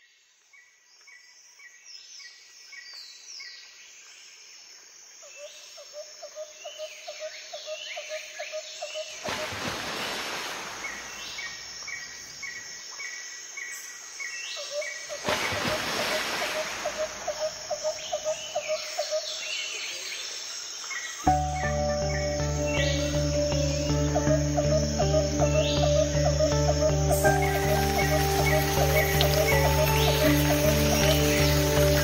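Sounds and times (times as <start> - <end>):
birds singing: 10.8 - 32.0.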